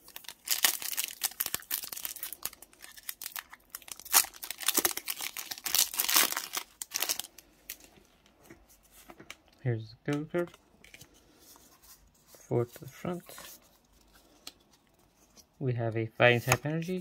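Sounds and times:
foil wrapper tearing and crinkling: 0.0 - 7.9.

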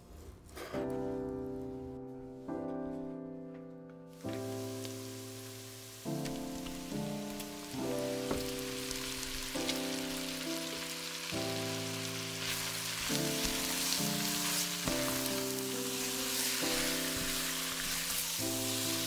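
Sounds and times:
meat sizzling in a pot: 4.2 - 19.0.

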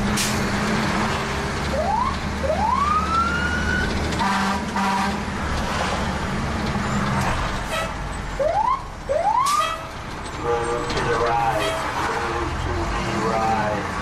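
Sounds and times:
truck engine rumbling: 0.0 - 14.0
rising siren whoops: 1.7 - 3.9, 8.4 - 9.8
fire engine horn blasts: 4.2 - 5.2, 7.7 - 8.0, 9.4 - 10.7, 11.5 - 12.0.

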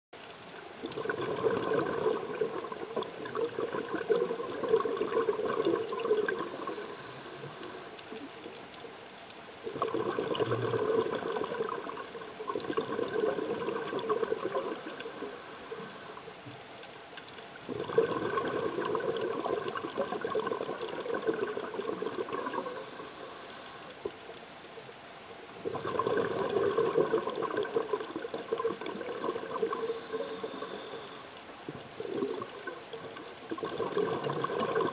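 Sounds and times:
bubbling underwater exhalations: 0.8 - 6.9, 9.6 - 16.2, 17.7 - 22.8, 25.6 - 30.8, 31.7 - 34.9.

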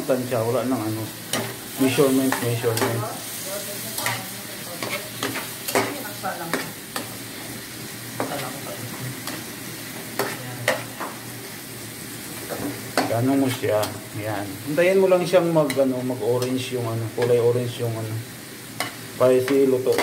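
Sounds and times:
shrimp sizzling in a pan: 0.0 - 20.0
utensil scraping a pan: 4.0 - 6.0.

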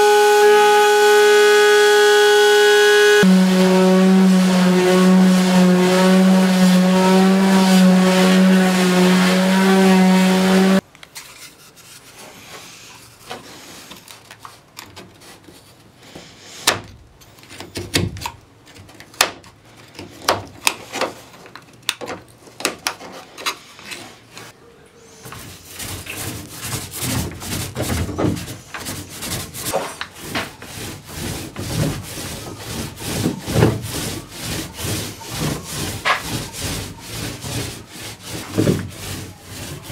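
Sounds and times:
electric sander humming: 0.0 - 10.8
paint roller rubbing on wood: 0.0 - 10.8, 25.2 - 39.9.

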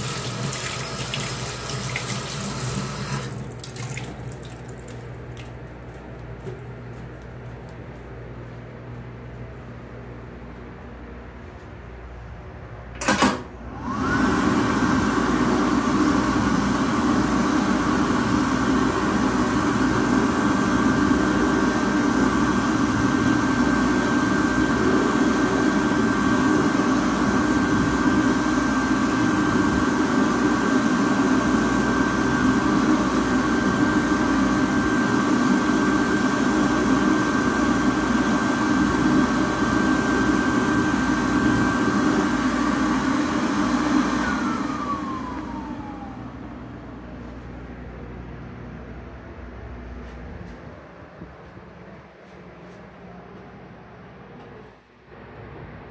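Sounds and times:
hand dryer running: 0.0 - 8.9, 13.0 - 49.0
motor spinning down: 42.6 - 46.6.

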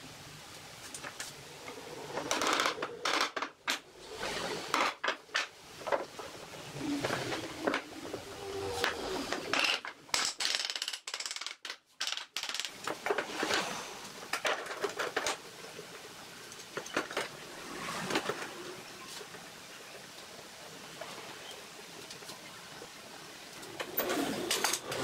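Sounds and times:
faint hiss: 0.0 - 9.6, 12.8 - 25.0.

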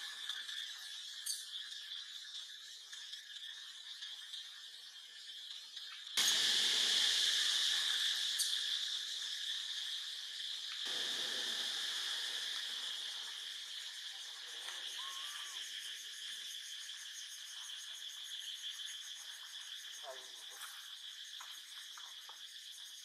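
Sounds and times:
high-pitched insect chorus: 0.0 - 23.0.

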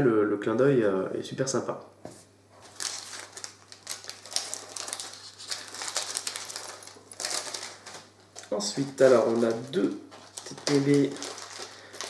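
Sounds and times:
plastic packaging crinkling: 2.6 - 12.0.

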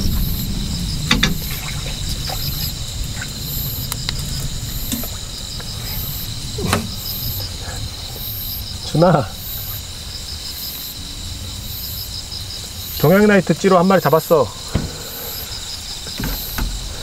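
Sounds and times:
low rumble: 0.0 - 10.4
crickets chirping: 0.0 - 17.0
short knocks: 1.1 - 2.7, 6.6 - 7.3, 14.7 - 15.2.

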